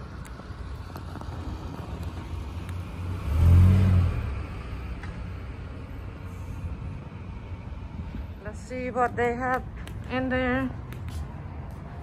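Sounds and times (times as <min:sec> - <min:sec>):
traffic hum: 0:00.0 - 0:12.0
car passing by: 0:01.3 - 0:05.2.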